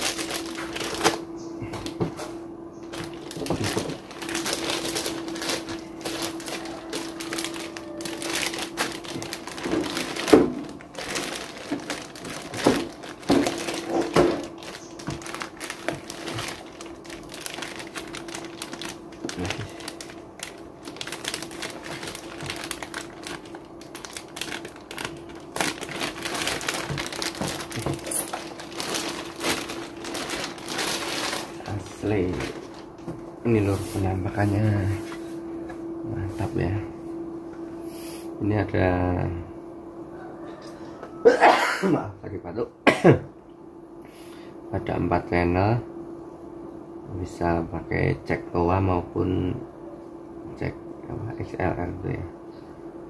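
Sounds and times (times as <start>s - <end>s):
plastic bag crinkling: 0.0s - 34.6s
steady low hum: 0.0s - 53.0s.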